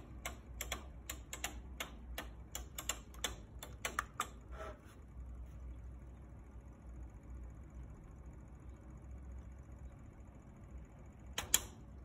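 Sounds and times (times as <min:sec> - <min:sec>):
faint irregular clicking: 0:00.0 - 0:04.4.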